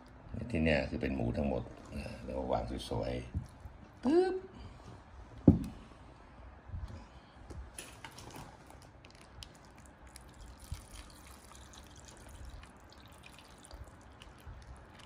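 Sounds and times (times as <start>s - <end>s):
dull thump: 5.4s - 5.7s
liquid trickling into a bowl: 9.6s - 15.0s.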